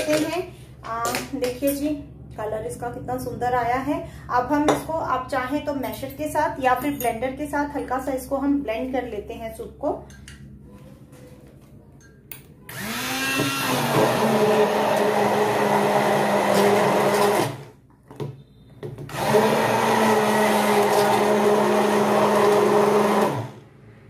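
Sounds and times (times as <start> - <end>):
immersion blender motor: 12.7 - 17.7, 19.1 - 23.6.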